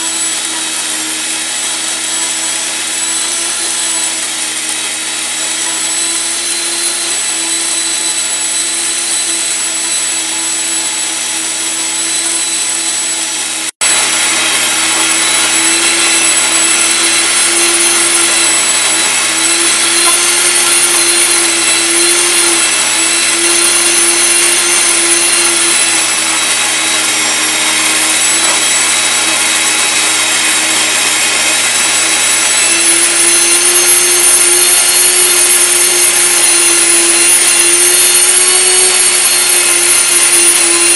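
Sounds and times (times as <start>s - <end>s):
electric grain mill whining: 0.0s - 40.9s.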